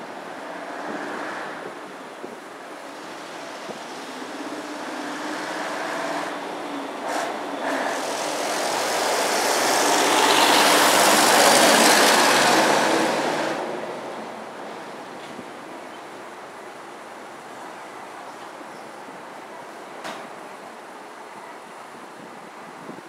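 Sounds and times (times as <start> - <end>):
vehicle passing by: 3.5 - 14.1.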